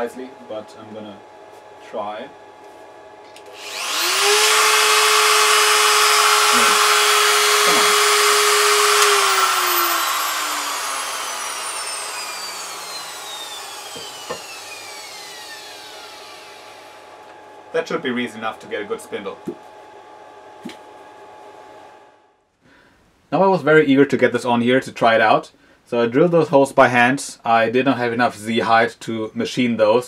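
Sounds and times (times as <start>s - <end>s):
router motor whining: 3.0s - 22.0s.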